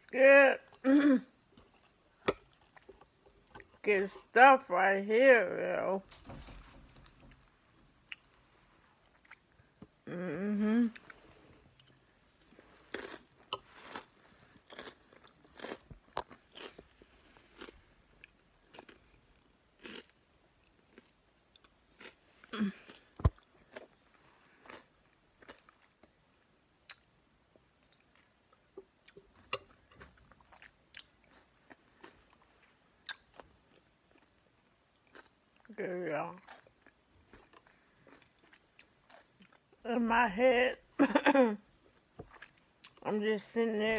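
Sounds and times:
person chewing crunchy food: 1.5s - 3.8s, 8.0s - 10.0s, 10.9s - 26.2s, 26.8s - 35.7s, 36.3s - 39.8s, 41.8s - 43.0s.

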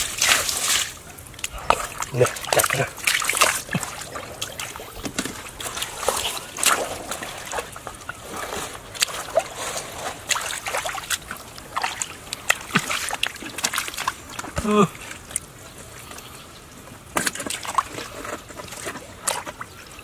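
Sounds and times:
hands splashing in muddy water: 0.0s - 14.8s.

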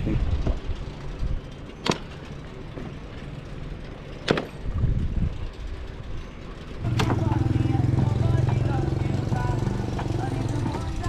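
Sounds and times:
wind and road noise rumble: 0.0s - 11.0s.

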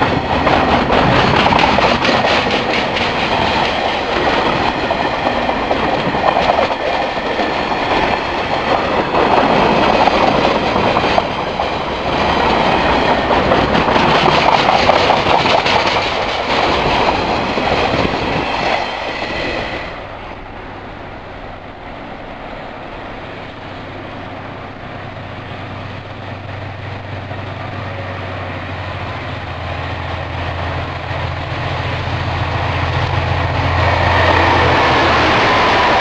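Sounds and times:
freight wagons clickety-clack: 0.0s - 18.9s
diesel locomotive drone: 0.0s - 36.0s.

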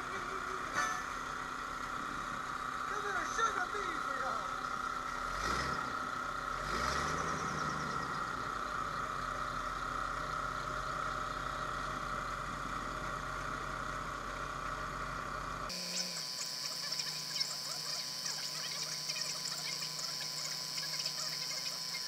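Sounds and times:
boat engine humming: 0.0s - 5.4s, 7.7s - 22.0s
high thin buzz: 15.7s - 22.0s.

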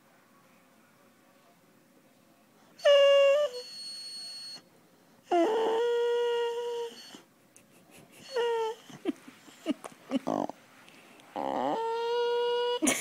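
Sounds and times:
dog whining: 2.8s - 4.6s, 5.3s - 7.3s, 8.2s - 10.6s, 11.3s - 13.0s.

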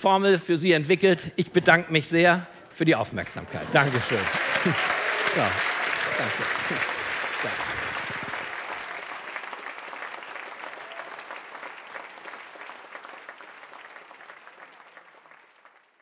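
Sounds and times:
audience applauding: 3.2s - 16.0s.

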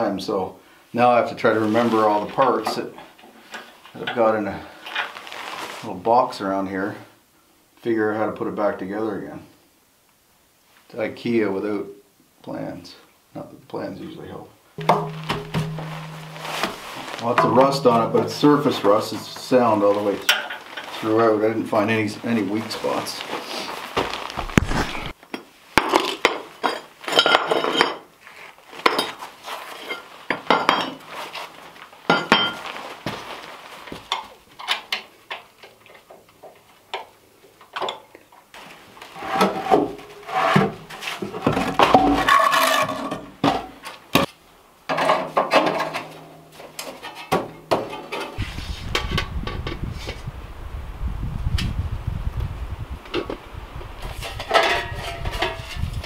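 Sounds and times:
cast iron parts clanking: 14.8s - 21.1s, 44.9s - 48.4s, 54.2s - 55.9s.

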